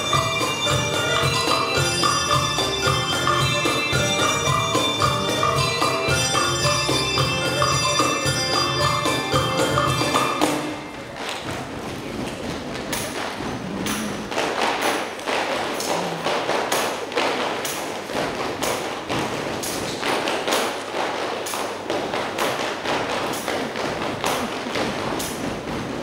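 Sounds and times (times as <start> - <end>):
hand percussion claps and thumps: 0.0 - 26.0.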